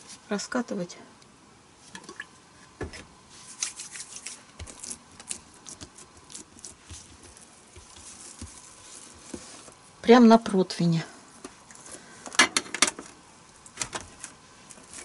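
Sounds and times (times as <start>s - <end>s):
hands kneading dough: 3.3s - 10.2s.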